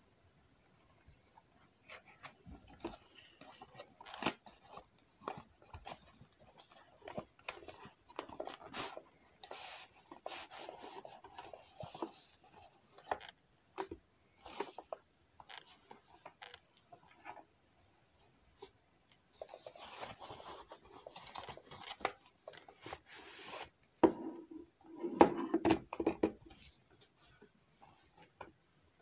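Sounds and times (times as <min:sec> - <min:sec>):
packaging crinkling and rustling: 0:19.4 - 0:23.7.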